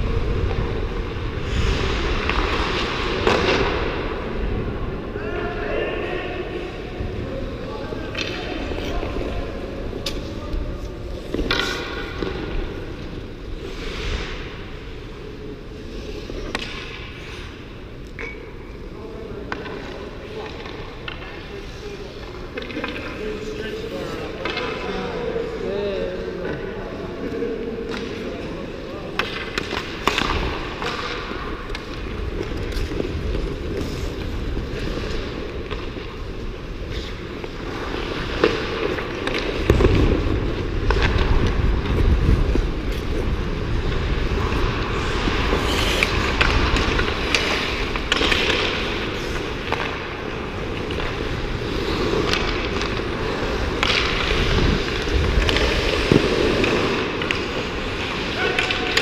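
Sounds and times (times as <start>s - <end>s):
hockey sticks and puck clacking: 0.1s - 4.6s, 7.5s - 25.7s, 26.4s - 59.0s
skate blades scraping ice: 8.2s - 18.1s, 27.9s - 59.0s.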